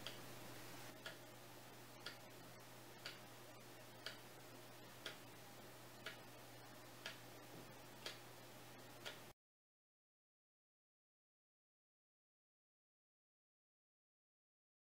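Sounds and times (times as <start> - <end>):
faint low hum: 0.0 - 9.3
wall clock ticking: 0.0 - 9.3.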